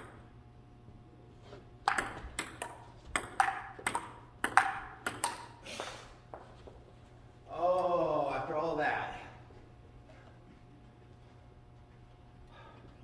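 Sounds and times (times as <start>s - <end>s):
table tennis ball hits: 1.8s - 5.6s.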